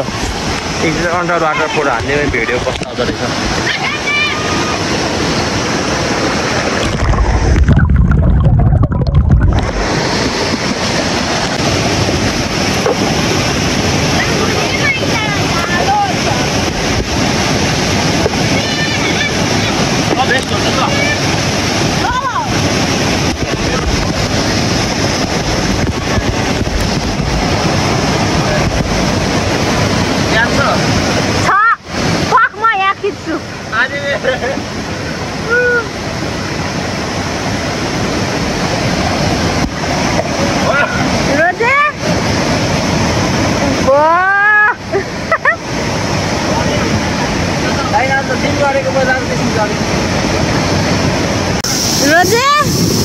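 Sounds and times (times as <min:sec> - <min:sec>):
stream rushing over rocks: 0:00.0 - 0:53.0.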